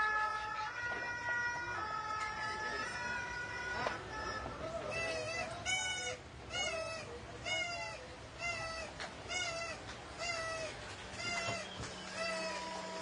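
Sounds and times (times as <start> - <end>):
two-tone fire engine siren: 0.0 - 4.6.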